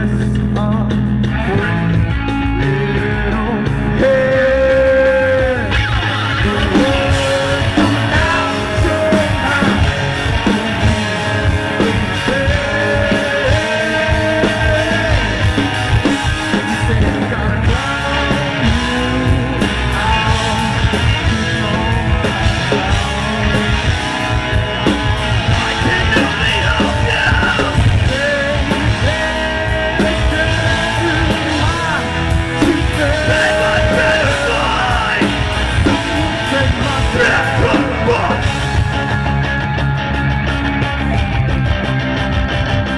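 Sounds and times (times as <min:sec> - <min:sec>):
lead vocal singing: 0:00.0 - 0:39.1
bass guitar: 0:00.0 - 0:42.9
drums: 0:00.0 - 0:42.9
electric guitar: 0:00.0 - 0:42.9.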